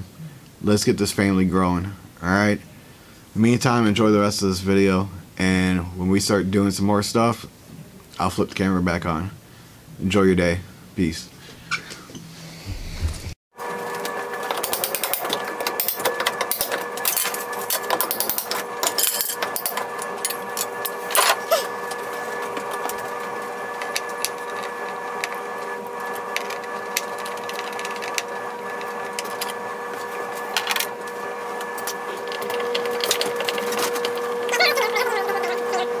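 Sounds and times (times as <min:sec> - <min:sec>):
steady hum: 0:12.3 - 0:13.4.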